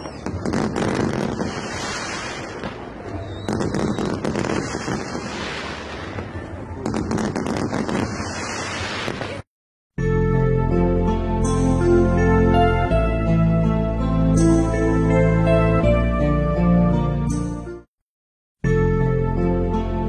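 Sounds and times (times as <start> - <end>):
firework shells bursting with crackle: 0.0 - 9.4.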